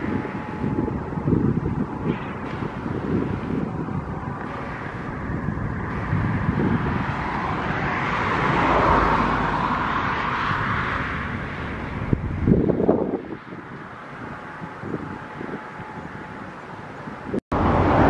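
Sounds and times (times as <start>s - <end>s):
wind rumble on microphone: 0.0s - 18.0s
vehicle passing by: 2.6s - 16.4s, 17.5s - 18.0s.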